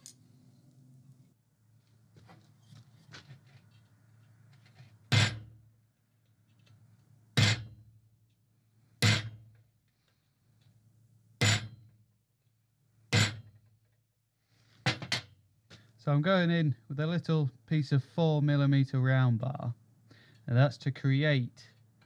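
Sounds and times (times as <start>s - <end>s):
hammer striking steel bar: 5.1s - 5.5s, 7.4s - 7.8s, 9.0s - 9.4s, 11.4s - 11.8s, 13.1s - 13.5s.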